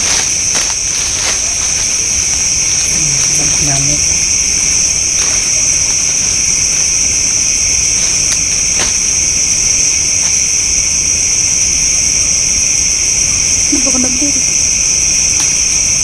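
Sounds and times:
night insects chorus: 0.0s - 16.0s.

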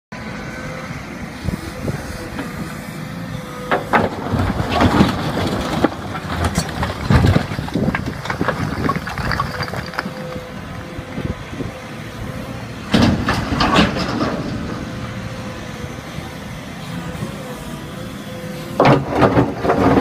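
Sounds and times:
excavator diesel engine under load: 0.2s - 20.0s
bricks clattering against bucket: 3.9s - 10.6s.

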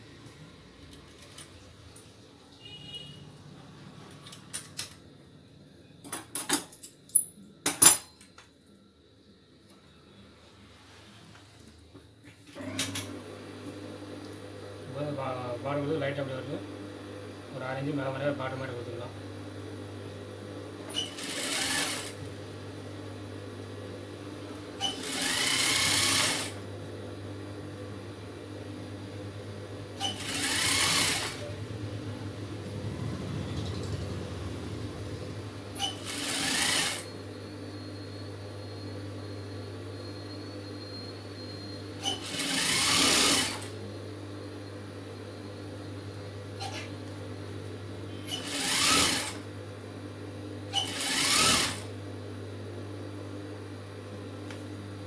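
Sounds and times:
sewing machine stitching: 20.9s - 22.2s, 24.8s - 26.6s, 30.0s - 31.5s, 35.8s - 37.1s, 42.0s - 43.7s, 48.3s - 49.4s, 50.7s - 51.9s
steady low hum: 31.2s - 35.8s.

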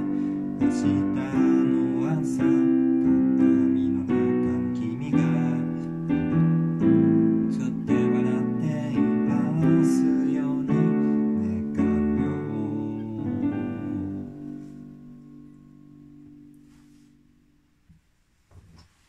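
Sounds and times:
digital piano chords: 0.0s - 17.9s.

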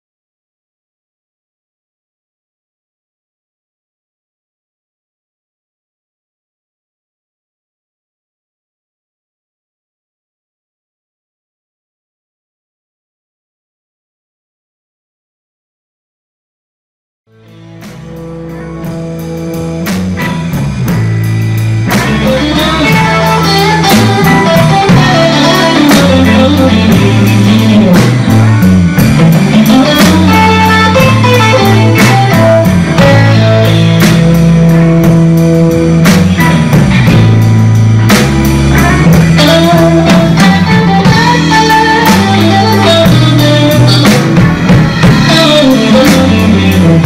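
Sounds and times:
bass guitar: 17.3s - 47.0s
drum kit: 17.3s - 47.0s
electric guitar lines: 17.3s - 47.0s.

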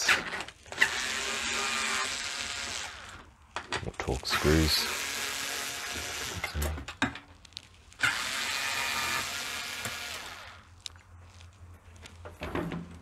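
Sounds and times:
electric screwdriver whirring: 0.7s - 3.3s, 4.4s - 6.7s, 8.0s - 10.7s.

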